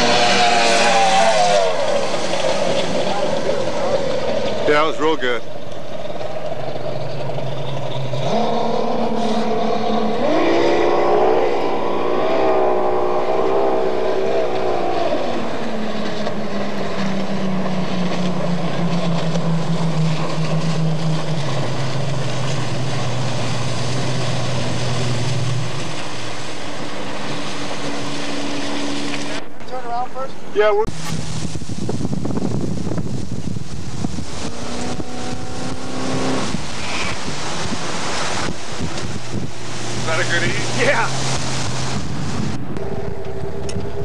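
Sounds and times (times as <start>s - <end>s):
water and spray hissing: 0.0s - 5.4s, 18.0s - 30.0s, 30.6s - 43.4s
speedboat engine running hard: 0.0s - 29.5s, 30.6s - 44.0s.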